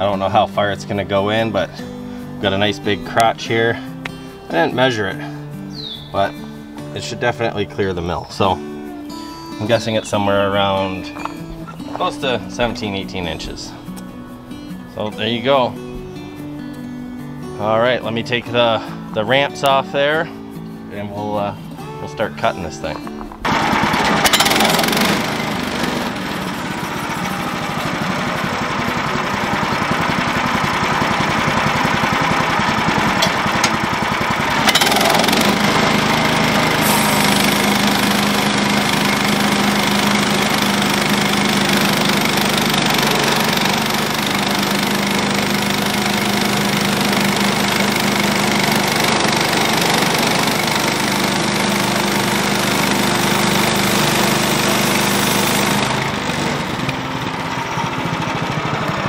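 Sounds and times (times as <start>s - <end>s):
small gasoline engine running: 22.9s - 59.0s
band blade cutting log: 23.5s - 26.8s, 28.4s - 57.0s.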